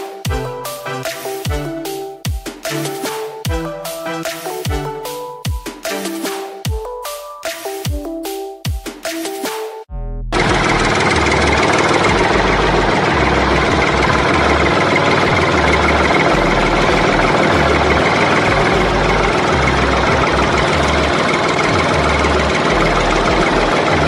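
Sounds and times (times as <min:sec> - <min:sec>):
tractor engine idling: 0:10.4 - 0:24.0.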